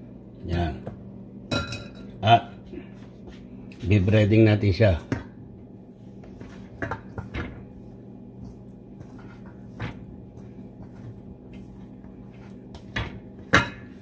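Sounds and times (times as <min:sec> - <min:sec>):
steady low hum: 0:00.0 - 0:14.0
chicken tossed in flour in bowl: 0:06.0 - 0:14.0.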